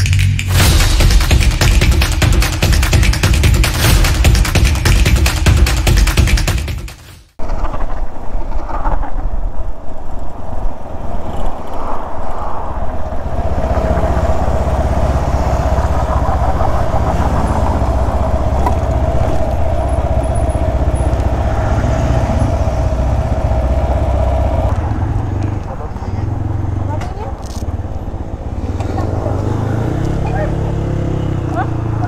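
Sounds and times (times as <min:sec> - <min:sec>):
motorcycle engine running: 0:00.5 - 0:07.1, 0:13.4 - 0:32.0.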